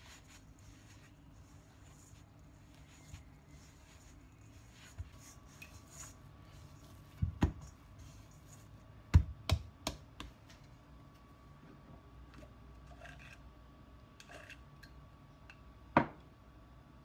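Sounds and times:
dough rubbing in a bowl: 0.0s - 9.0s
dough thumping against a bowl: 7.2s - 7.7s, 9.1s - 10.4s.

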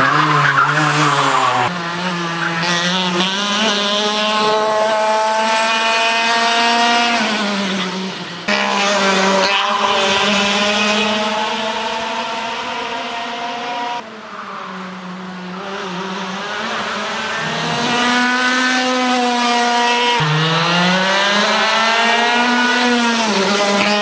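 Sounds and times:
racing kart engine revving: 0.0s - 24.0s.

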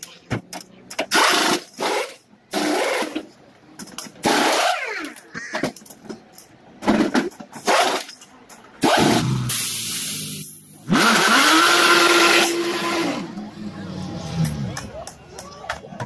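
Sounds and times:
pneumatic wheel guns whirring: 0.9s - 3.3s, 4.0s - 5.2s, 6.9s - 13.3s.

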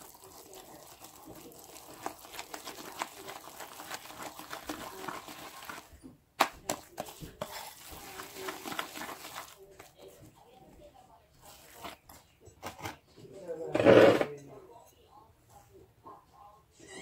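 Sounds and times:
whisk beating batter in bowl: 0.0s - 12.3s.

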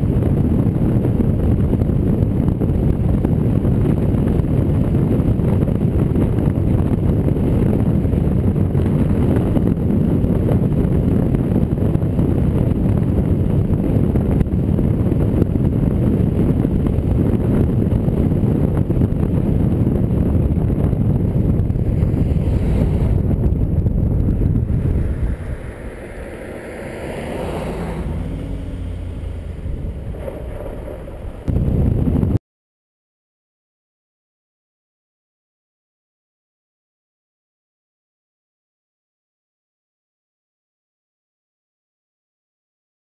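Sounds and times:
wind and road noise: 0.0s - 32.4s
wind buffeting microphone: 0.0s - 32.4s.

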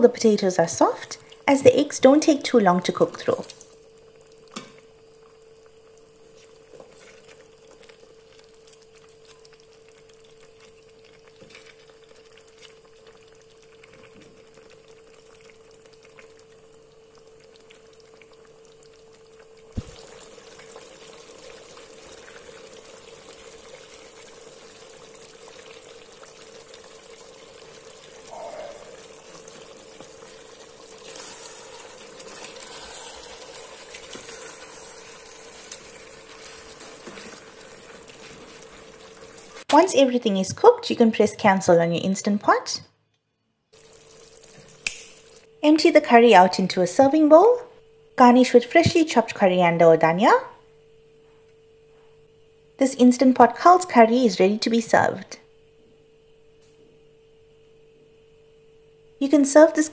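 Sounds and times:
curry bubbling and sizzling: 0.0s - 41.1s, 43.7s - 45.6s
faint steady hum: 0.0s - 59.9s.

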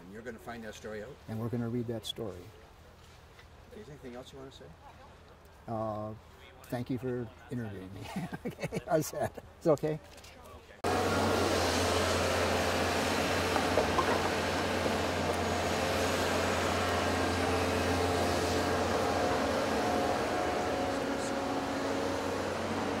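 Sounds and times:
excavator diesel engine humming: 10.8s - 23.0s.

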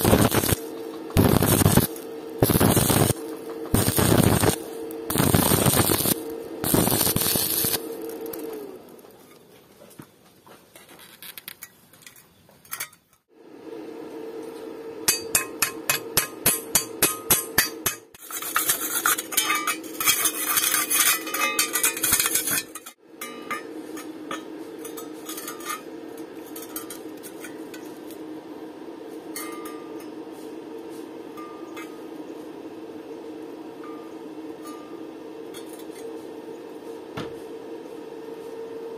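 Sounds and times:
steady low hum: 0.0s - 9.8s, 12.1s - 38.9s
hammer striking steel tube: 15.1s - 18.2s, 23.2s - 25.0s
metallic clinking and scraping: 16.8s - 28.2s.

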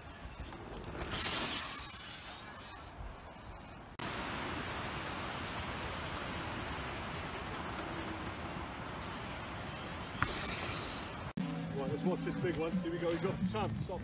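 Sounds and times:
bike tyre and air rush: 0.0s - 11.4s
steady hiss: 1.1s - 11.4s.

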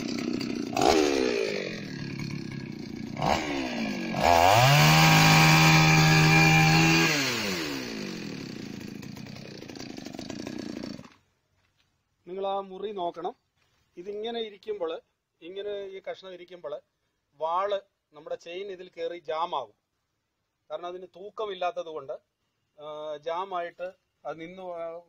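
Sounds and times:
chainsaw cutting into log: 0.0s - 11.3s
chainsaw idling and revving: 0.0s - 11.3s.

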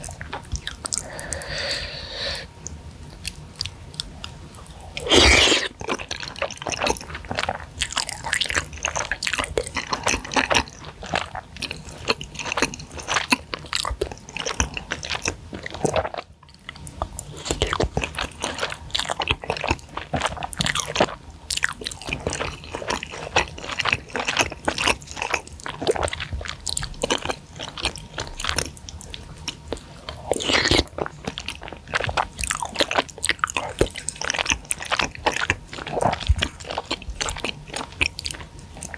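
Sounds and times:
wet chewing and mouth smacks: 0.0s - 1.5s, 2.6s - 38.9s
slurping noodles: 5.0s - 5.8s.

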